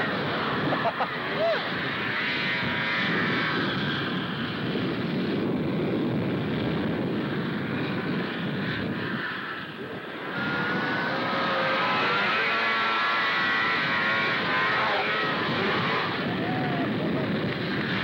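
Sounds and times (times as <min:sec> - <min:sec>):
high engine whine rising: 0:00.0 - 0:18.0
snowmobile engines running: 0:00.0 - 0:18.0.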